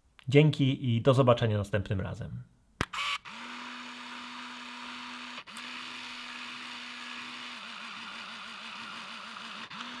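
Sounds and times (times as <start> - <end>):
small electric motor whirring: 2.8 - 10.0.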